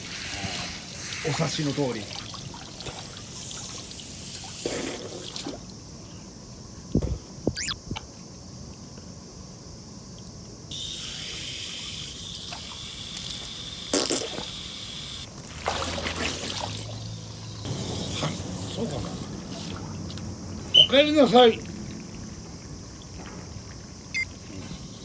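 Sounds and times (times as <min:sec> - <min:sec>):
hose water trickling into a pool: 0:00.0 - 0:06.0, 0:10.1 - 0:25.0
water splashing: 0:00.9 - 0:05.7, 0:15.3 - 0:24.2.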